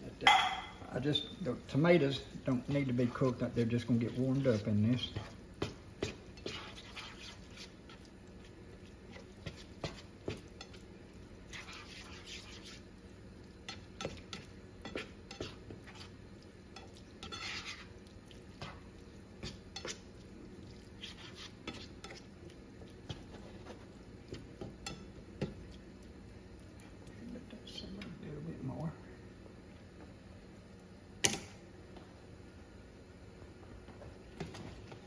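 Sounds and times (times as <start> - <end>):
spatula scraping pan: 3.1 - 8.1, 9.0 - 10.8, 11.4 - 12.9, 13.7 - 18.0, 18.6 - 20.1, 20.8 - 22.4
spatula tapping pan: 4.0 - 8.0, 9.1 - 10.8, 13.6 - 17.9, 18.6 - 20.0, 23.0 - 25.7.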